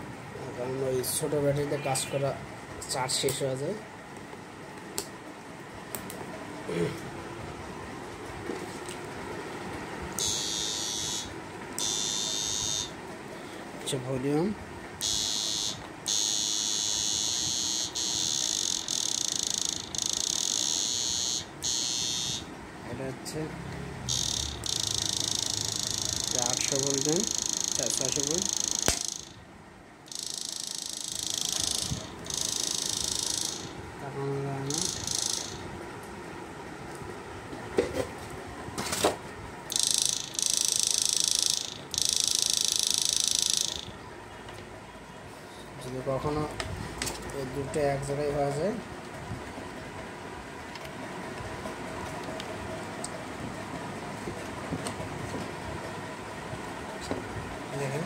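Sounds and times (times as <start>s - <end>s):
high-pitched electrical buzz: 10.1s - 13.0s, 15.0s - 22.6s, 23.3s - 35.7s, 39.7s - 44.1s
sharp clicks: 24.1s - 29.4s, 39.7s - 44.0s.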